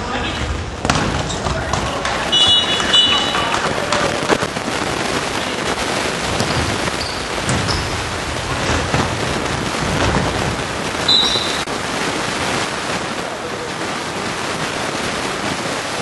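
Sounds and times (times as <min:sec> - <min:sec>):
crowd and court noise: 0:00.0 - 0:16.0
high whistle blast: 0:11.1 - 0:11.7.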